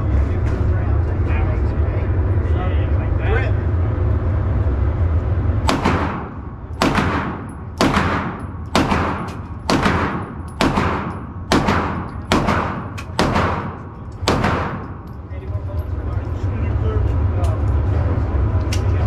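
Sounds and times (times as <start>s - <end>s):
low rumble: 0.0s - 19.0s
gunshots with ringing tail: 5.6s - 15.1s.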